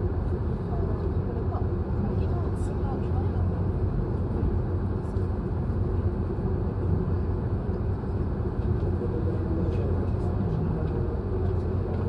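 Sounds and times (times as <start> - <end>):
train humming at platform: 0.0 - 12.0.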